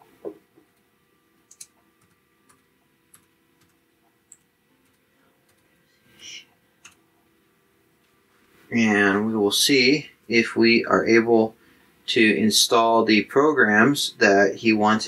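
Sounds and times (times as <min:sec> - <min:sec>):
laptop keyboard keystrokes: 0:01.5 - 0:05.6.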